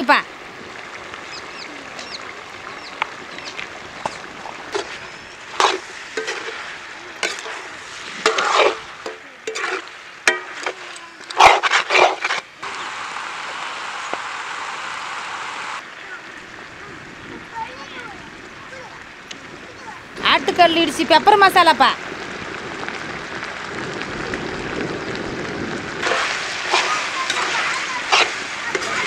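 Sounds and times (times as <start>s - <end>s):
frying hiss: 0.0s - 29.0s
metal spatula scraping a pan: 4.7s - 12.5s, 26.0s - 29.0s.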